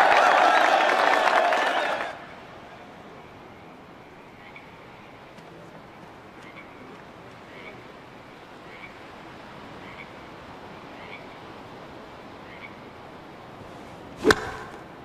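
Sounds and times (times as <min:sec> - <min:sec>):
golf club striking ball: 0:14.2 - 0:14.9.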